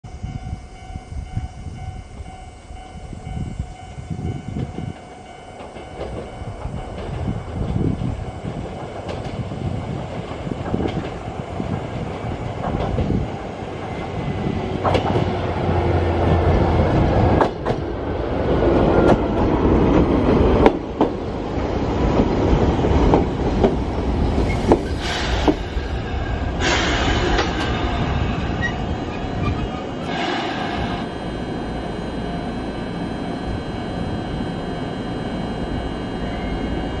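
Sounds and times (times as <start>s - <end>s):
train wheels clacking over rail joints: 14.8s - 15.5s, 22.1s - 25.9s
train brake hiss: 24.5s - 28.2s, 30.1s - 31.6s.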